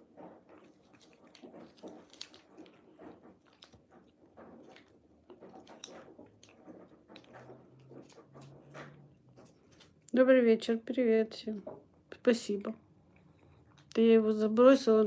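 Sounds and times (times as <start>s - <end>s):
cat licking and chewing: 0.0s - 10.2s, 12.9s - 14.0s.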